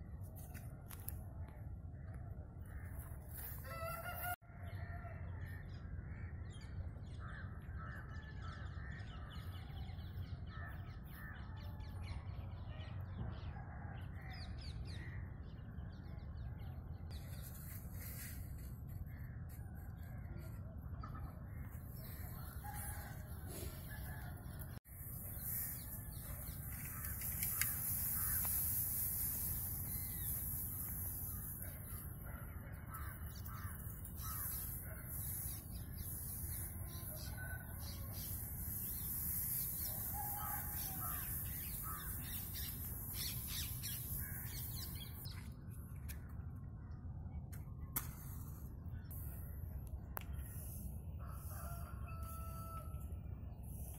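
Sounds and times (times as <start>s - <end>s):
dry straw rustling: 2.8s - 4.4s, 17.1s - 20.6s, 21.6s - 45.2s
birds calling: 20.2s - 45.4s.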